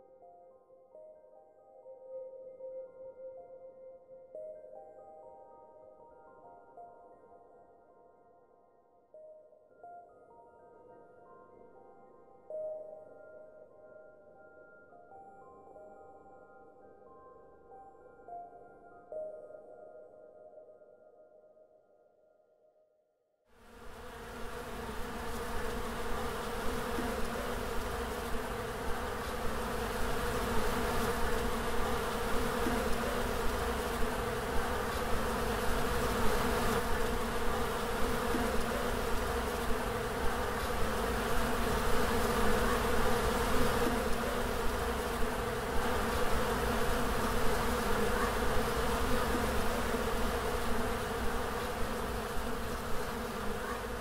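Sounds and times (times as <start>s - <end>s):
bees buzzing: 23.8s - 54.0s.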